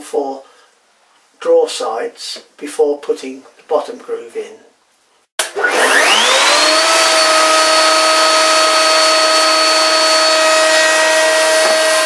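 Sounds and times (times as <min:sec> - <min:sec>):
router cutting wood: 0:05.4 - 0:12.0.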